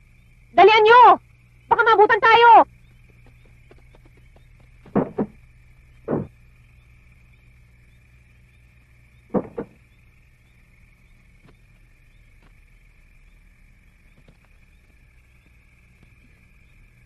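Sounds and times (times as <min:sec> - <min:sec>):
faint high hum: 0:00.0 - 0:17.0
thumps in a struggle: 0:04.8 - 0:05.4, 0:06.1 - 0:06.3, 0:09.3 - 0:09.8.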